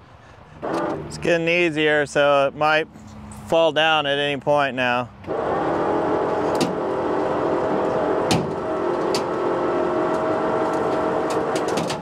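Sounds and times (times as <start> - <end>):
winch and engine whining under load: 0.0 - 2.2, 5.1 - 12.0.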